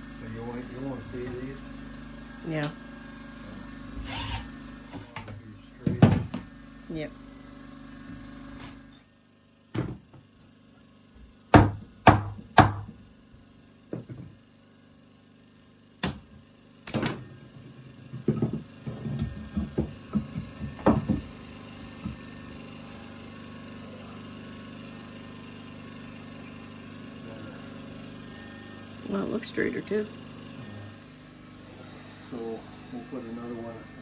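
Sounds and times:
hard knocks on wooden frame: 5.8 - 6.5, 11.5 - 13.0, 18.2 - 21.4.

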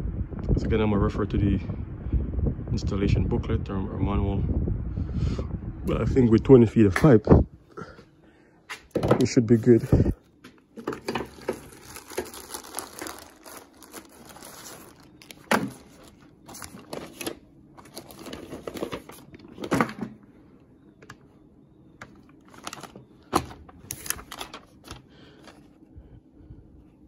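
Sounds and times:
paper rustling: 9.5 - 20.0, 22.1 - 25.8
plastic bag crinkling: 10.8 - 19.9, 22.2 - 25.6.

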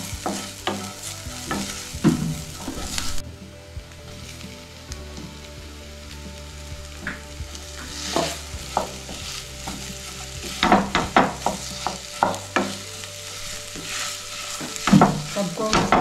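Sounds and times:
spatula scraping and knocking pan: 0.0 - 3.2, 6.9 - 16.0
food sizzling in oil: 0.0 - 16.0.

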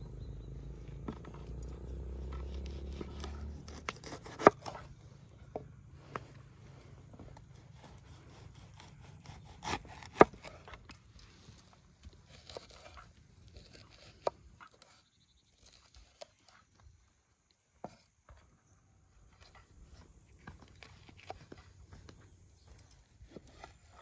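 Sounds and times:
knife chopping on wooden board: 2.3 - 4.8, 7.8 - 10.6.

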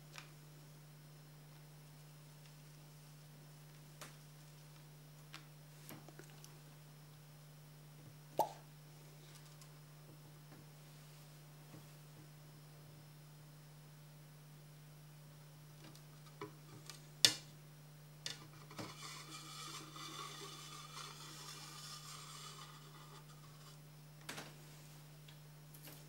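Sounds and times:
steady low hum: 0.0 - 26.0
glass sheets scraping on wood: 18.3 - 23.8.

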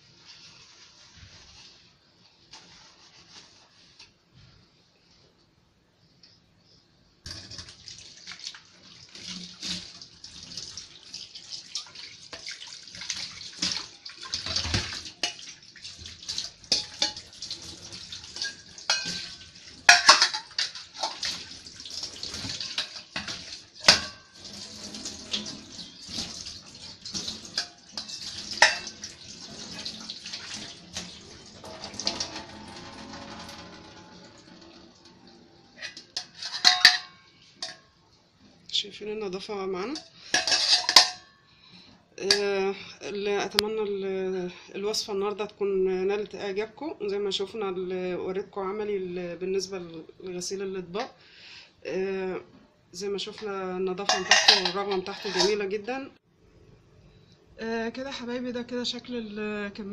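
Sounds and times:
tap water running into sink: 7.3 - 35.6
metal bowls clinking: 16.3 - 17.4, 18.0 - 21.5, 22.3 - 38.0, 39.9 - 41.4, 54.0 - 55.8.

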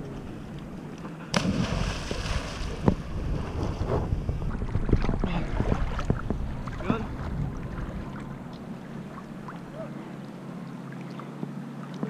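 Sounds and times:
water sloshing around boat: 0.0 - 12.0
person splashing into water: 1.3 - 3.0
wind on microphone: 1.4 - 8.5.

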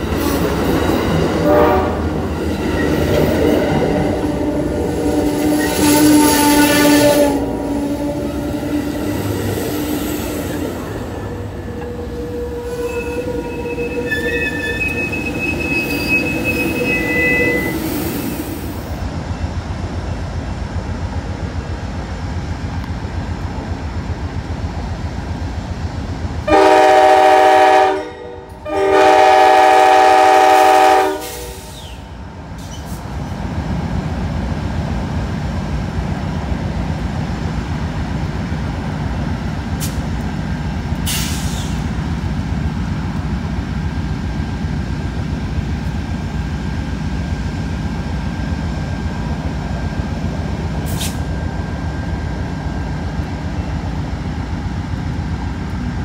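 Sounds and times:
diesel locomotive idling: 0.0 - 56.0
train air horn blasts: 1.4 - 2.3, 5.4 - 9.5, 11.3 - 17.8, 26.5 - 32.0.

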